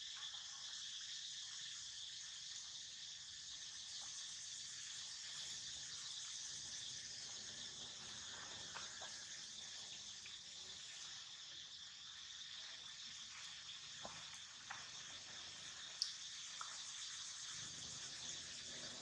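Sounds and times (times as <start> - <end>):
insects chirring: 0.0 - 19.0
faint ticks: 15.8 - 17.3.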